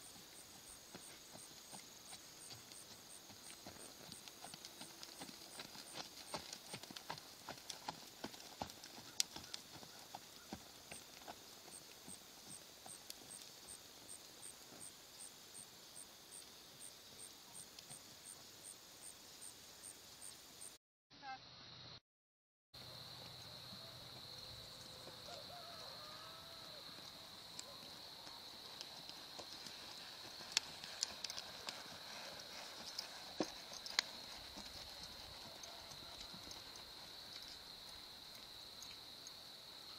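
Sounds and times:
horse hooves cantering in sand: 0:00.0 - 0:15.2, 0:22.9 - 0:39.5
insect chirping: 0:00.0 - 0:20.8, 0:22.8 - 0:39.9.

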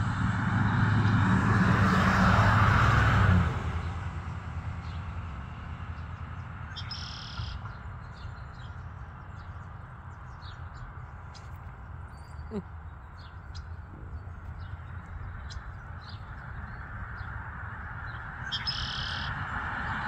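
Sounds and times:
engine hum: 0:00.0 - 0:20.0
faint bird chirps: 0:06.8 - 0:07.7, 0:18.5 - 0:19.3.

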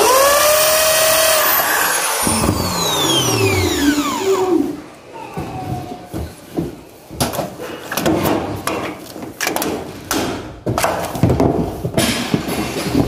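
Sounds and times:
knocks and scrapes of tile-laying: 0:05.4 - 0:13.0.

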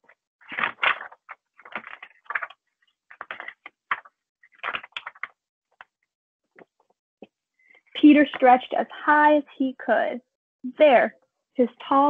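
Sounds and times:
book pages turning: 0:00.4 - 0:06.0.

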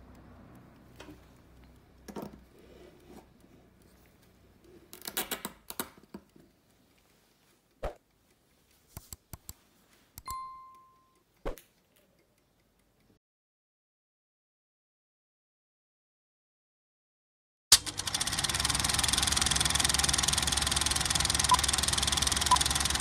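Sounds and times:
bell-like ding: 0:10.3 - 0:11.2.

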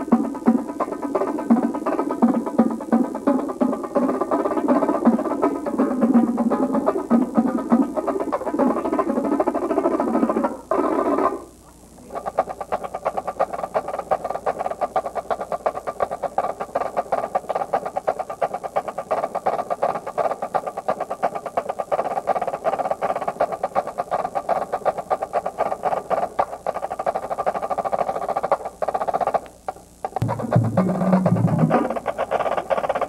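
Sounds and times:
marching drumline playing: 0:30.2 - 0:33.0.

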